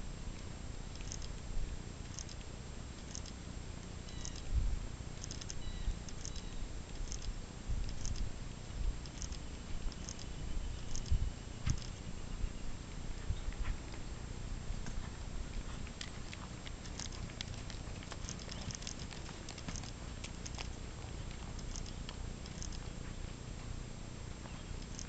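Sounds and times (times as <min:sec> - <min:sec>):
low steady rumble: 0:00.0 - 0:25.0
horse hooves on sand: 0:13.0 - 0:23.5.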